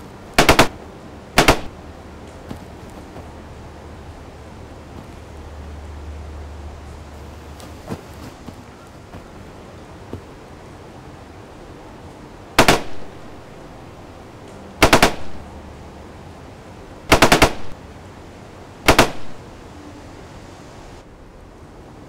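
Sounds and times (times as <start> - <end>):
automatic gunfire bursts: 0.4 - 0.8, 1.4 - 1.7, 12.6 - 13.1, 14.8 - 15.4, 17.1 - 17.8, 18.9 - 19.4.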